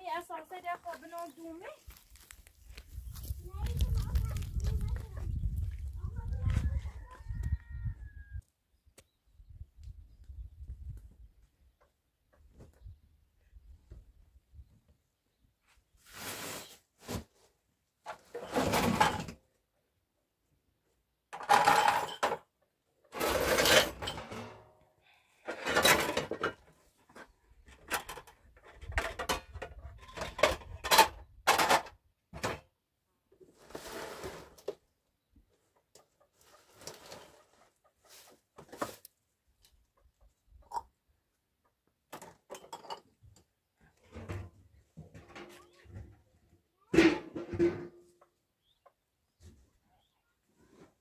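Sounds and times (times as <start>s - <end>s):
kitchenware clattering and scraping: 21.4s - 22.4s, 23.1s - 24.7s, 25.5s - 26.7s, 42.5s - 43.1s, 46.9s - 48.0s.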